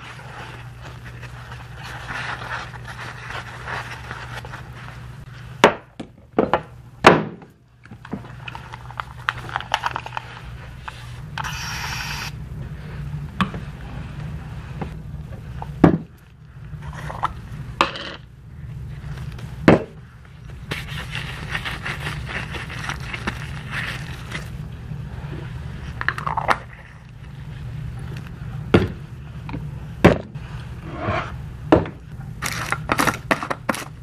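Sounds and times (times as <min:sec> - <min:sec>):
low steady hum: 0:00.0 - 0:34.0
spray bottle hiss: 0:11.4 - 0:12.4.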